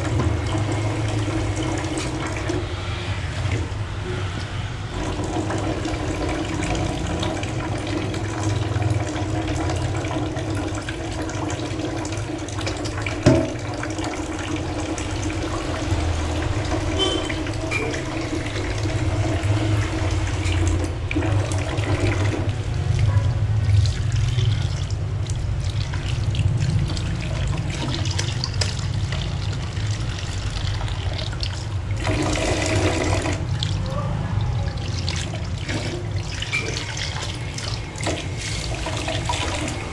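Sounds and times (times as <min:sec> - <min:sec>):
tap water running into sink: 0:00.0 - 0:39.9.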